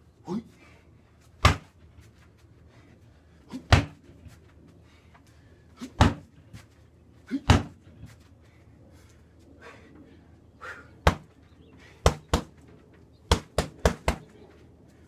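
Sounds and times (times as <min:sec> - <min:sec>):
kicks thudding on heavy bag: 0:01.4 - 0:01.7, 0:03.7 - 0:04.0, 0:06.0 - 0:06.3, 0:07.5 - 0:07.8.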